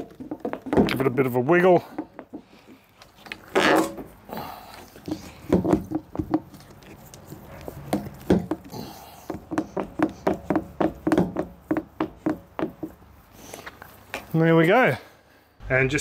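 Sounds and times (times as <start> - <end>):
plastic pipe creaking in rubber seal: 2.0 - 4.1.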